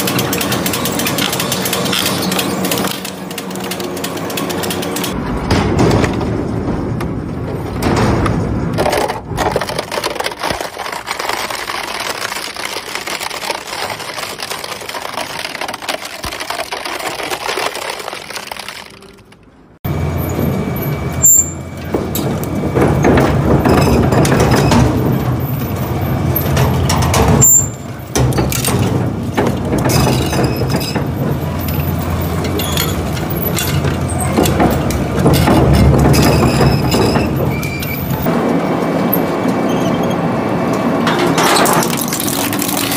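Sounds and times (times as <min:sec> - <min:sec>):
shredder crunching plastic: 0:00.0 - 0:05.2, 0:08.8 - 0:19.5, 0:41.0 - 0:42.9.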